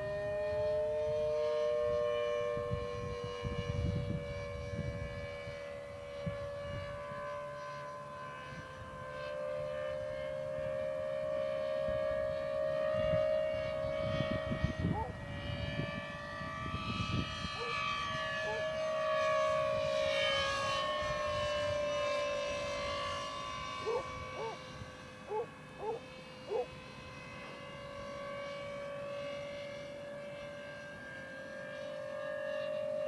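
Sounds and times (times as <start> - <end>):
electric ducted fans whining: 0.0 - 33.0
siren-like note: 0.0 - 33.0.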